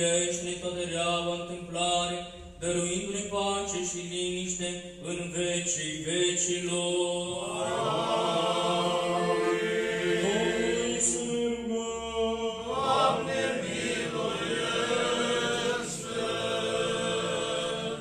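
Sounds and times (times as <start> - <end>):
group singing a cappella chant: 6.0 - 18.0.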